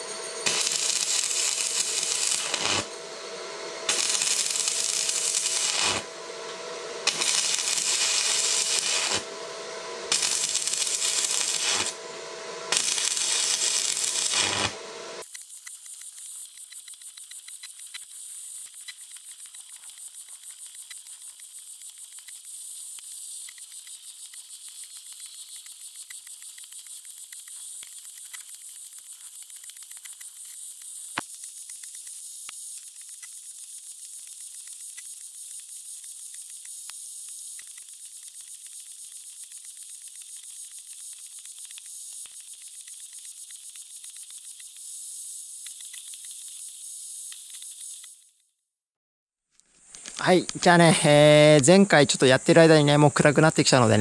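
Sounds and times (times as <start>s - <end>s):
welding arc crackling and hissing: 0.0s - 48.3s, 49.6s - 54.0s
quiet high hiss with crackling: 49.6s - 54.0s.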